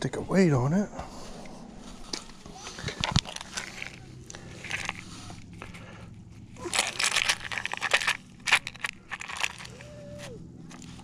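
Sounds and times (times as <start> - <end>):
crinkly rustling of fishing tackle: 1.3 - 11.0.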